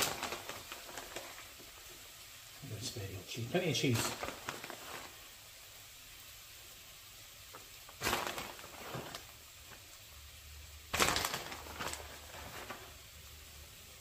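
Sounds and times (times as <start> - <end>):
plastic bag crinkling: 0.0 - 2.1, 3.4 - 5.5, 7.5 - 10.0, 10.9 - 13.2.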